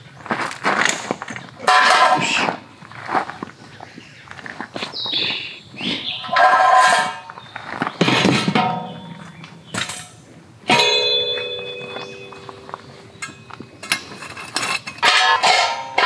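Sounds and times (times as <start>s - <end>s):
metal panels clanking: 1.6s - 2.4s, 6.2s - 7.4s, 8.0s - 16.0s
metal panel ringing: 8.0s - 16.0s.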